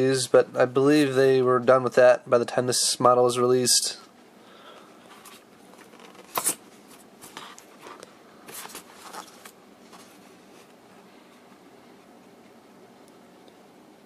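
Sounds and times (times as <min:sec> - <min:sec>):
cardboard and paper rustling: 0:05.1 - 0:10.8.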